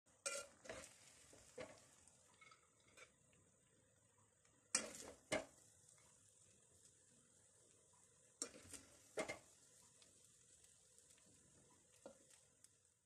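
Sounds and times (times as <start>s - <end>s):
metal spoon clinking on pot: 0.2s - 0.9s.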